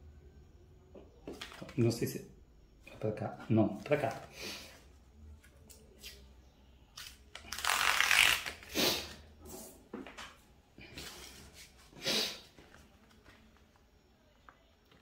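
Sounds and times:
paper envelope tearing: 7.0s - 9.1s.

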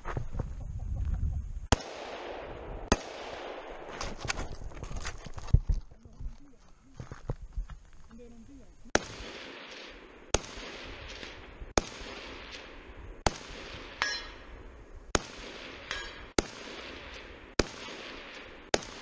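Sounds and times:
rifle shots with echo: 1.7s - 4.1s, 8.9s - 19.0s
high ringing: 14.0s - 14.5s.

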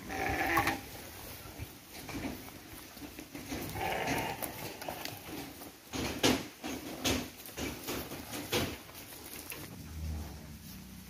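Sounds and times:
sheep bleating: 0.0s - 0.8s, 3.8s - 5.2s.

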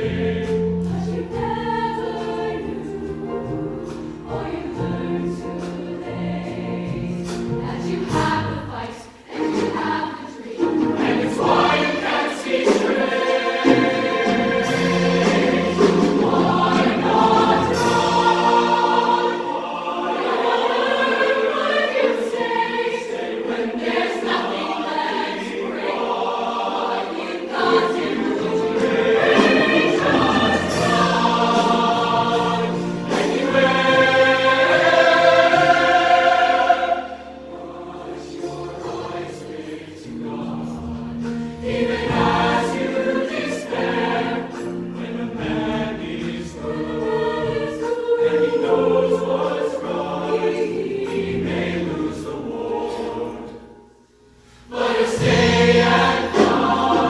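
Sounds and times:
choir singing in harmony: 0.0s - 57.0s
instrumental accompaniment: 0.0s - 57.0s.

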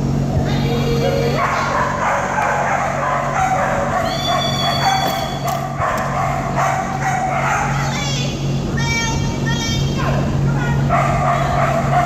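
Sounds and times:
dogs barking and yipping: 1.0s - 8.0s, 10.0s - 12.0s.

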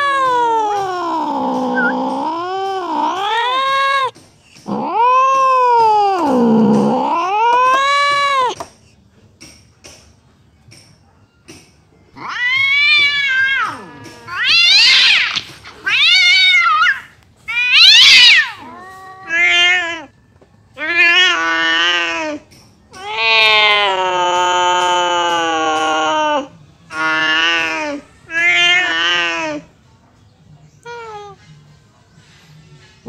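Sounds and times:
cat yowling: 0.0s - 8.6s, 12.2s - 20.1s, 20.8s - 29.7s, 30.8s - 31.4s.

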